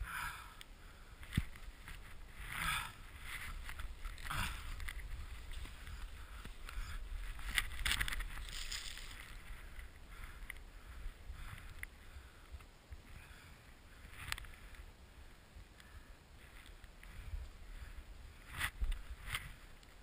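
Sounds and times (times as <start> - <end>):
low wind rumble on microphone: 0.8 - 20.0
skis swishing through powder snow: 8.2 - 9.5.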